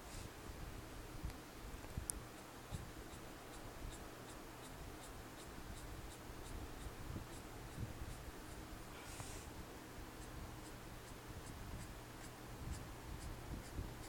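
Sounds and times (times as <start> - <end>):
marker scratching on paper: 10.2 - 13.8.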